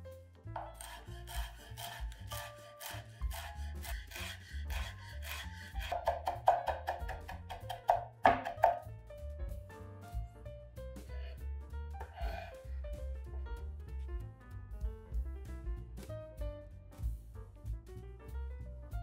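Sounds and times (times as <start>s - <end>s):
background music: 0.0s - 19.0s
kitchen scraping and tapping: 5.2s - 8.8s.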